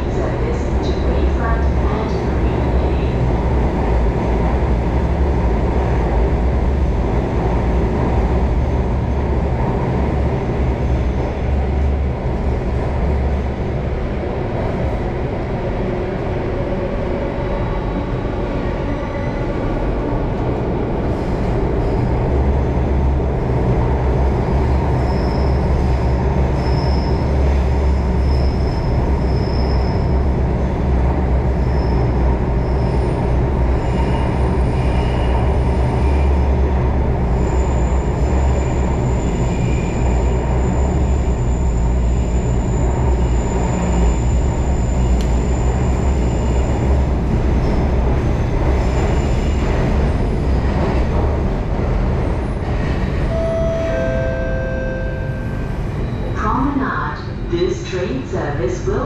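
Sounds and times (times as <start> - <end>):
train rumbling in tunnel: 0.0 - 59.0
high-pitched train squeals: 25.0 - 30.3, 31.5 - 36.4, 37.3 - 47.0, 53.1 - 56.5.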